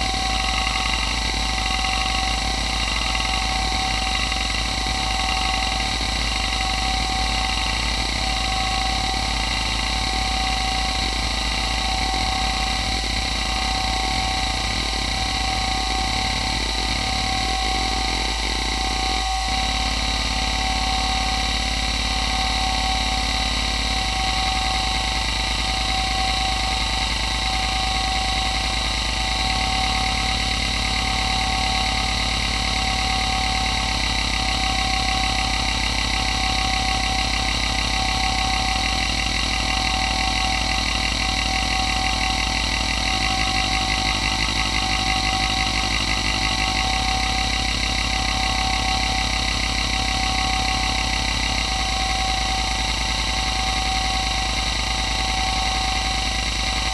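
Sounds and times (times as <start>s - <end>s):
hard drive spindle whine: 0.0s - 56.9s.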